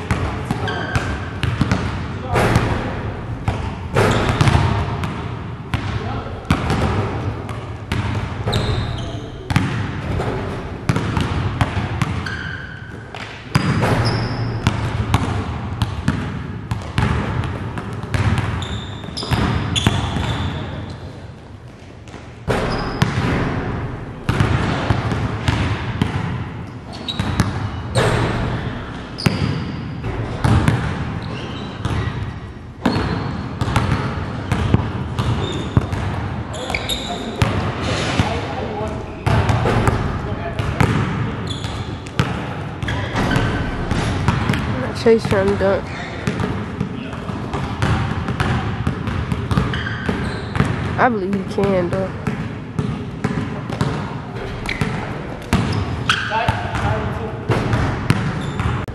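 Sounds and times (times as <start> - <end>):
basketballs bouncing on court: 0.0 - 58.9
short high squeaks: 8.5 - 9.4, 36.5 - 37.4.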